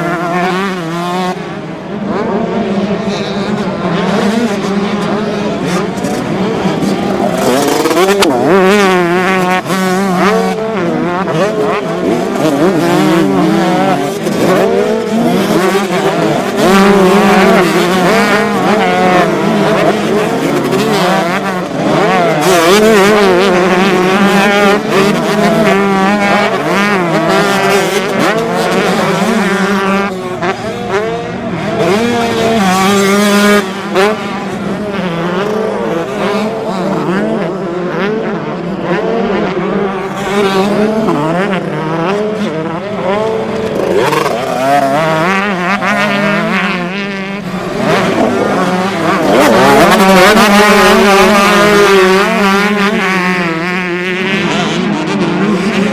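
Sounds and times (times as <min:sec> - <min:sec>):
motocross bike engines revving: 0:00.0 - 0:55.9.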